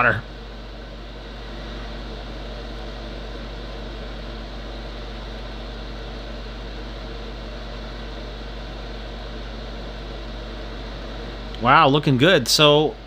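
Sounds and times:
low hum: 0:00.0 - 0:00.5
fan air rushing: 0:00.0 - 0:13.0.

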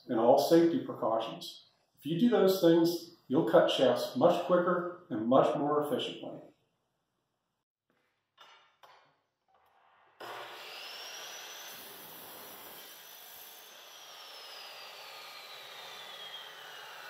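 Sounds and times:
chop saw motor whine: 0:10.1 - 0:17.0.

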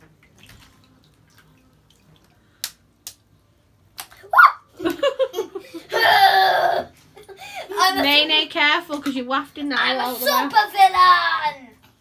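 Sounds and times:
children squealing and laughing: 0:04.2 - 0:04.8, 0:05.8 - 0:07.8.

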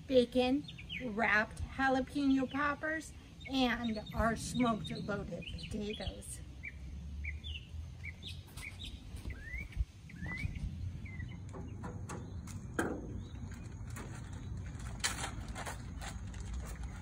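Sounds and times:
songbirds chirping: 0:00.0 - 0:17.0
steady low rumble: 0:03.1 - 0:08.2, 0:08.9 - 0:17.0.

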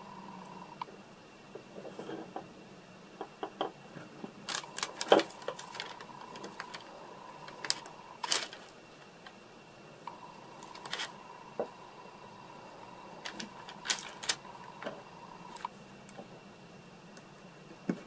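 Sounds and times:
small clicks and scratches: 0:03.9 - 0:09.4, 0:10.1 - 0:11.2, 0:13.2 - 0:16.2.

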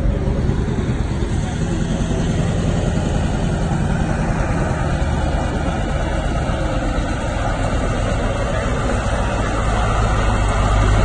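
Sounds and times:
diesel truck engine running: 0:00.0 - 0:11.0.

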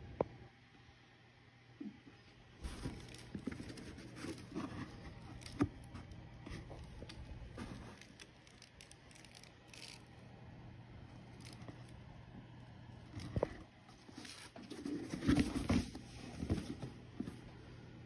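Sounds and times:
packing paper rustling: 0:02.6 - 0:10.1.

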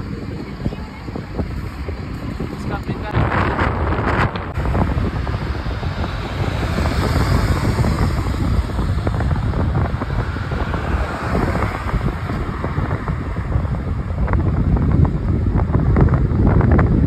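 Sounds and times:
road and traffic noise: 0:00.0 - 0:17.0
wind buffeting microphone: 0:00.0 - 0:17.0.

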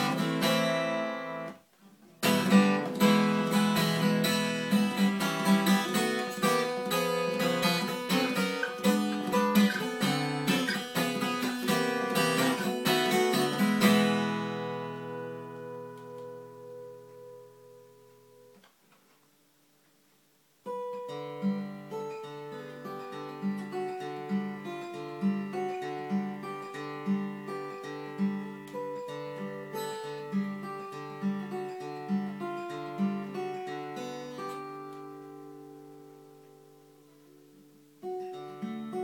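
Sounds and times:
fingerpicked acoustic guitar: 0:00.0 - 0:39.0.

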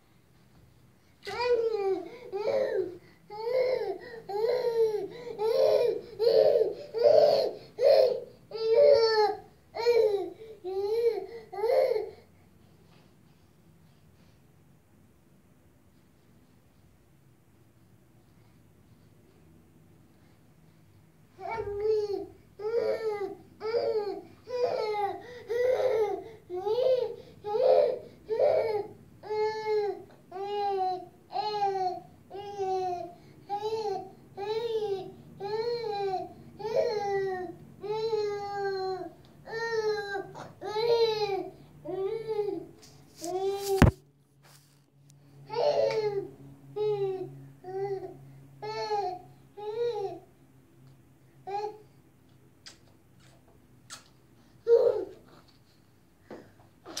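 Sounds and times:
toddler crying: 0:01.3 - 0:12.1, 0:21.4 - 0:43.9, 0:54.7 - 0:55.2
toddler wailing: 0:01.3 - 0:12.1.

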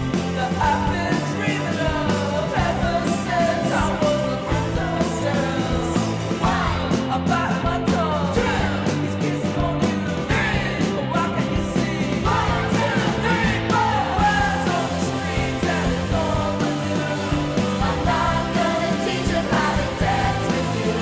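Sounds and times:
music with singing voice: 0:00.0 - 0:21.0.

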